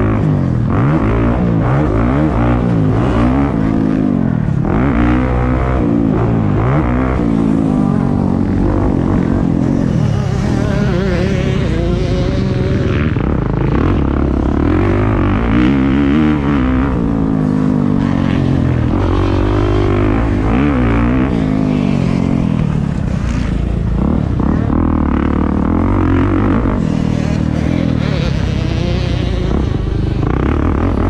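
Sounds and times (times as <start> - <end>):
dirt bike engine revving: 0.0 - 31.0.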